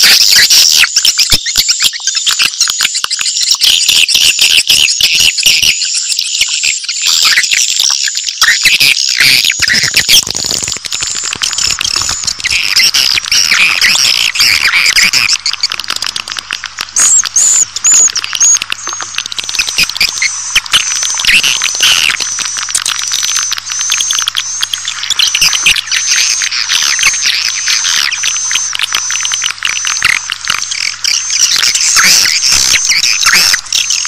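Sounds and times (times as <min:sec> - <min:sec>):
baby swiftlet calls: 0:05.0 - 0:15.8, 0:17.0 - 0:18.9, 0:30.0 - 0:34.0.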